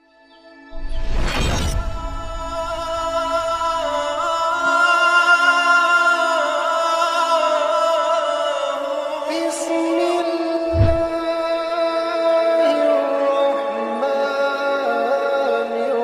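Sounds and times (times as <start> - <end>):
short whoosh: 0.8 - 4.4, 10.7 - 11.3
steady drone: 0.8 - 4.6.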